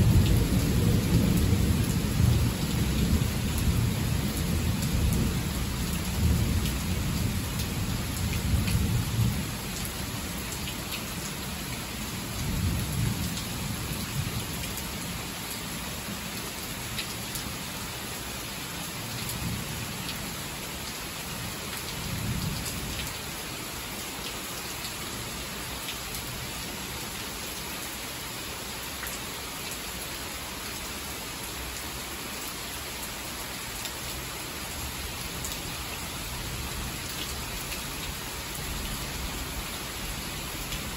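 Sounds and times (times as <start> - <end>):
raindrops tapping on surfaces: 0.0 - 15.6, 16.3 - 17.5, 34.9 - 40.9
heavy rain: 0.0 - 40.9.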